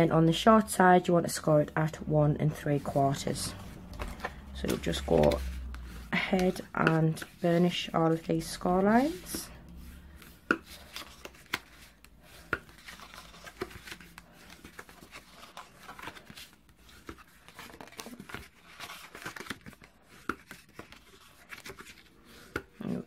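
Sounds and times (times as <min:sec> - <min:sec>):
card scraping and rustling: 0:02.5 - 0:22.9.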